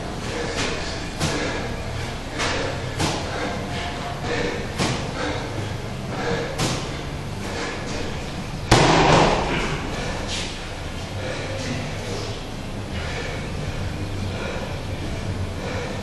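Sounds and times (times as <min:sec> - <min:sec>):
ball slamming on concrete floor: 0:08.7 - 0:09.8.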